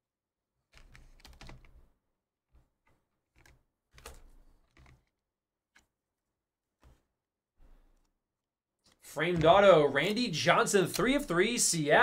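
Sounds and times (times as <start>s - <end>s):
trading card rustling: 8.8s - 11.7s.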